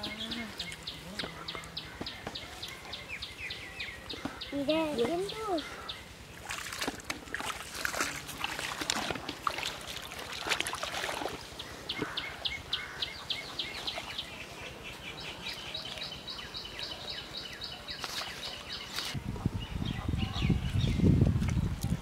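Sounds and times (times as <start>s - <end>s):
water splashing from wading: 6.3s - 12.4s.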